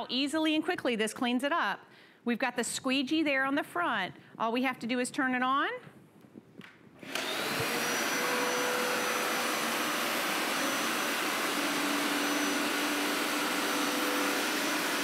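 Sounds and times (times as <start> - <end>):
carpet cleaner switch: 6.6 - 15.0
suction motor with high whine: 7.0 - 15.0.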